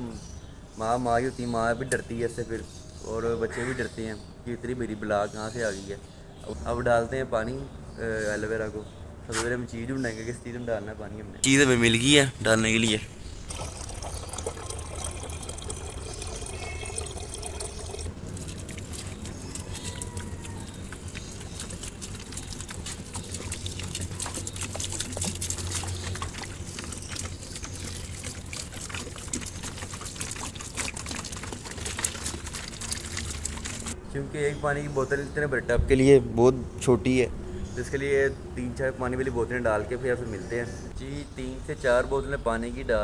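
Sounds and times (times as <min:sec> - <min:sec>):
water splashing onto leaves: 0:13.5 - 0:34.0.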